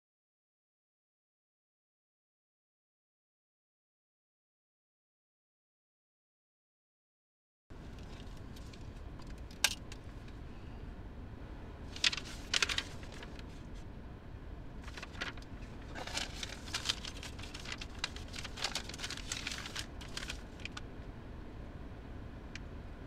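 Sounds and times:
low rumble inside car: 14.8s - 20.8s
small clicks and rattles: 14.9s - 20.8s.

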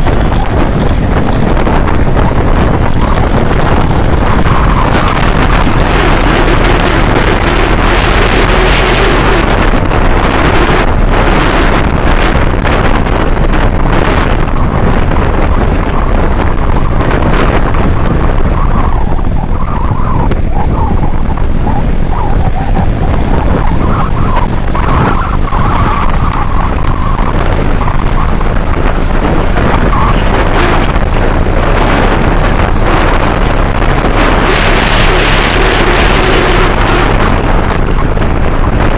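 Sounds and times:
motorcycle engine running: 0.0s - 38.9s
wind rushing on microphone: 0.0s - 38.9s.

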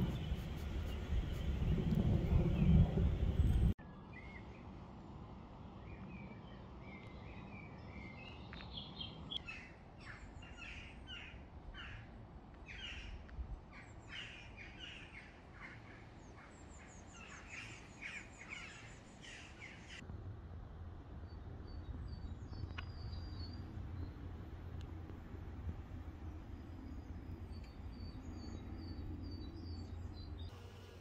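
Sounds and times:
faint low rumble: 0.0s - 8.7s, 20.0s - 30.6s.

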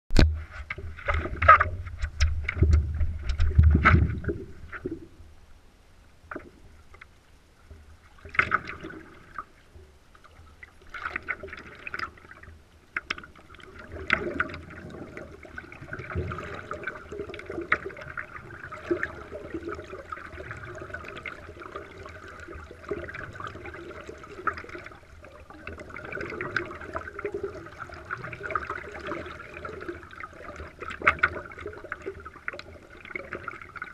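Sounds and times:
water lapping and splashing: 0.4s - 5.2s, 7.8s - 33.9s
paddle strokes in water: 7.8s - 33.9s.

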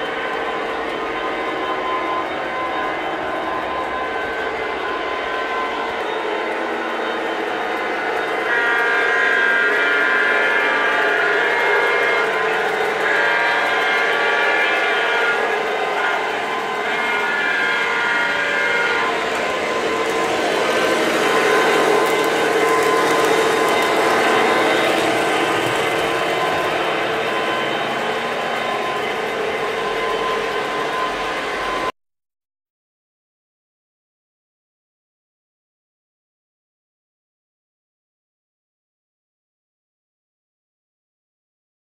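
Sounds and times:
model trains running on track: 0.0s - 31.9s.

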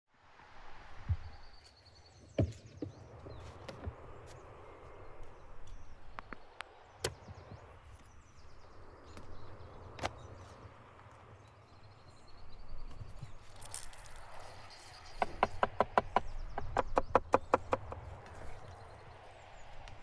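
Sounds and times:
wood knocks and thuds: 2.3s - 3.0s.

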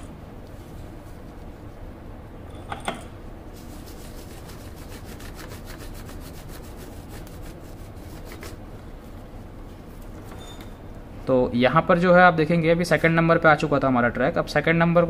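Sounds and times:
rubbing on circuit board: 3.6s - 8.6s.

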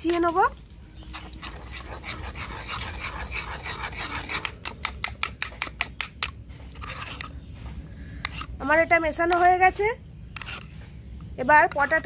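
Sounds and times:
metal spoon scraping bowl: 0.0s - 7.5s, 8.2s - 10.8s, 11.5s - 12.0s.

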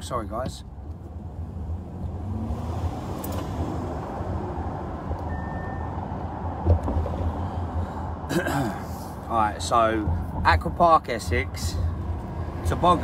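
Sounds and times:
car cabin road rumble: 0.0s - 13.0s
short high beep: 5.3s - 6.0s.

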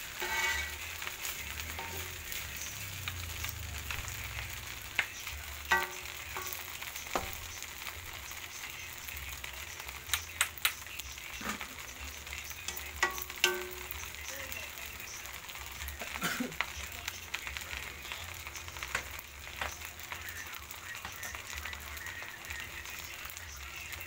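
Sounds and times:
spatula scraping and knocking pan: 0.0s - 2.8s, 4.9s - 7.9s, 12.7s - 14.1s
rice sizzling in a wok: 0.0s - 24.0s.

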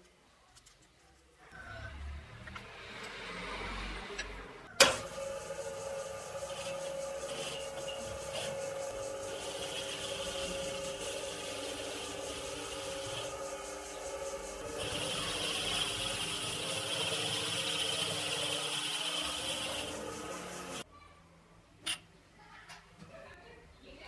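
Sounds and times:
hissing metal cutting: 5.0s - 20.8s
lathe gear whine: 5.0s - 20.8s.

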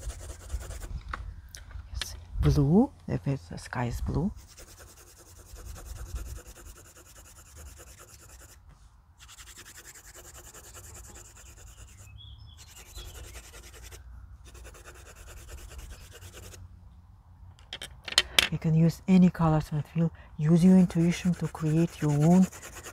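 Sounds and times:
colored pencil scratching on paper: 0.0s - 0.9s, 4.3s - 8.6s, 9.2s - 12.0s, 12.6s - 16.6s, 20.6s - 22.9s.

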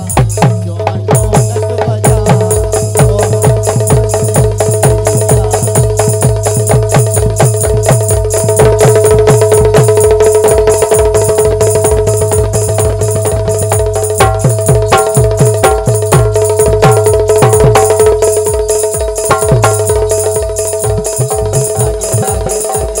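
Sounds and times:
hand drum fast rhythm: 0.0s - 23.0s
steady held note: 10.5s - 23.0s.

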